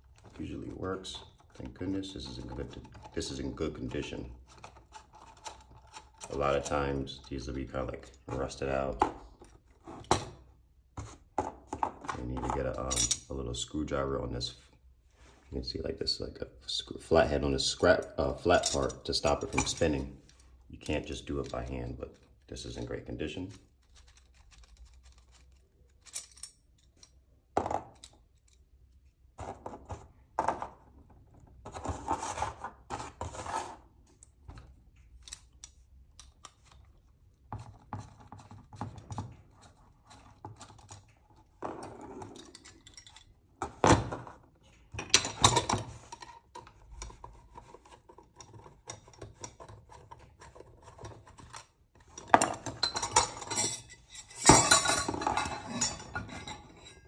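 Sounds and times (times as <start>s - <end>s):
metal parts clinking and rattling: 23.8s - 28.7s, 41.9s - 43.5s, 45.0s - 47.1s, 51.5s - 57.0s.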